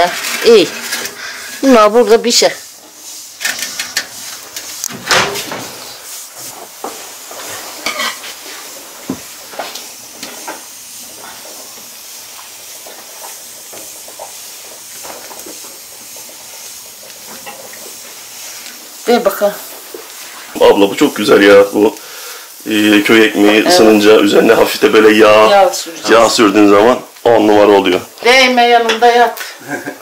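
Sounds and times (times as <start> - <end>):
food sizzling on stove: 0.0 - 30.0
pan and dishes clinking: 7.8 - 8.4, 17.2 - 17.8.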